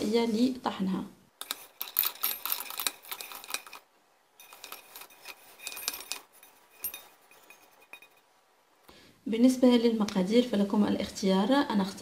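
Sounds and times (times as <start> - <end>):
nuts rattling into metal bowl: 1.4 - 8.1
metal lid clinking: 4.4 - 8.3.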